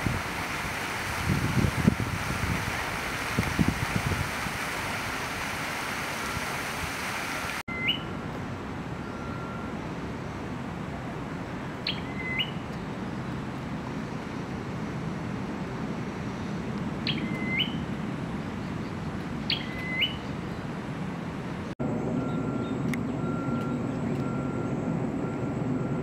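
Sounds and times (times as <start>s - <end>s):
wind noise on microphone: 0.0s - 7.6s
bird chirps rising in pitch: 7.7s - 8.2s, 11.8s - 12.7s, 17.1s - 17.8s, 19.5s - 20.3s.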